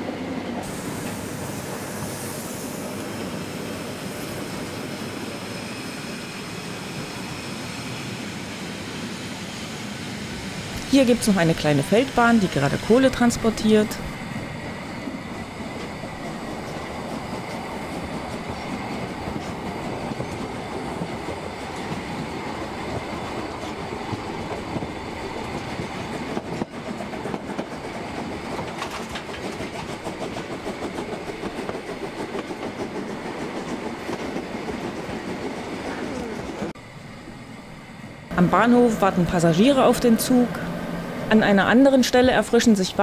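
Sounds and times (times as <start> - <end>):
model train wheels clattering on rails: 26.4 - 32.7.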